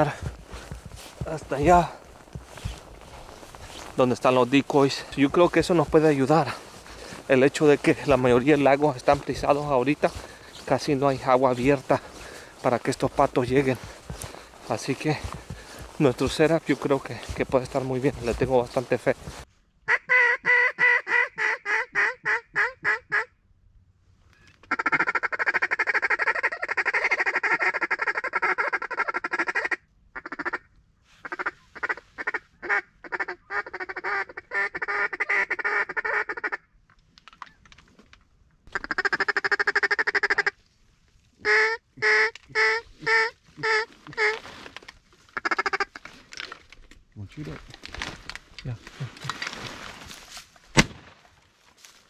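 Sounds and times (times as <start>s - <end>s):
rapid duck call chatter: 19.9s - 23.0s, 41.4s - 44.4s
duck call quacking: 19.9s - 23.3s, 24.7s - 36.6s, 38.7s - 40.6s, 41.4s - 44.4s, 45.4s - 46.0s.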